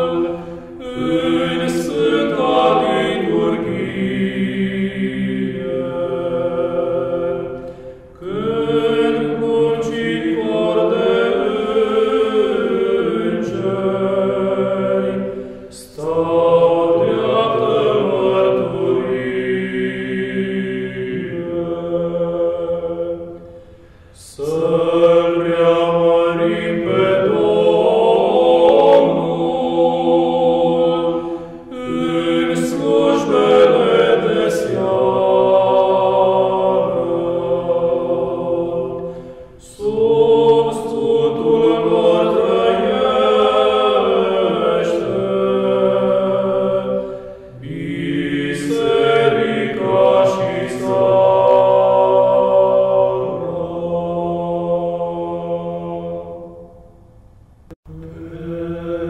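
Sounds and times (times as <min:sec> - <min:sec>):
voices singing slow chant: 0:00.0 - 0:57.2, 0:57.9 - 0:59.0.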